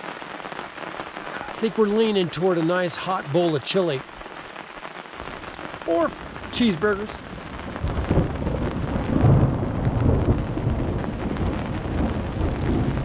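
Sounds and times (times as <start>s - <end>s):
heavy rain hissing: 0.0s - 13.0s
thunder rolling: 5.3s - 13.0s.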